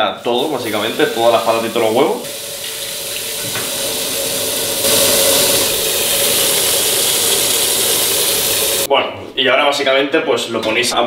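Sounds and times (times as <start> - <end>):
tap water splashing into pot: 2.2 - 8.4.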